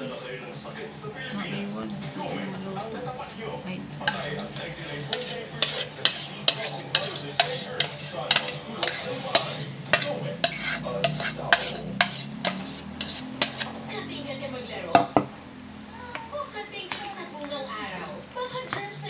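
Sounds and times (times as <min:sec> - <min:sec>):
spoon clinking against bowl: 0:04.0 - 0:13.7
metal spoon scraping bowl: 0:04.0 - 0:13.8.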